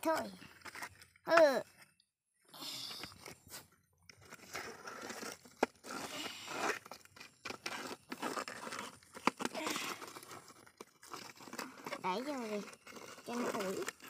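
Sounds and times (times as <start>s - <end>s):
toy bulldozer scraping wet mud: 2.9s - 14.0s.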